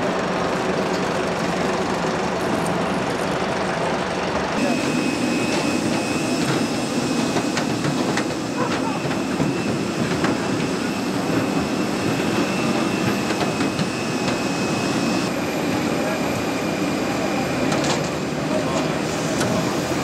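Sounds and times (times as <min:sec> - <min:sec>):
aircraft engine drone: 0:00.0 - 0:20.0
faint high whine: 0:04.6 - 0:07.6.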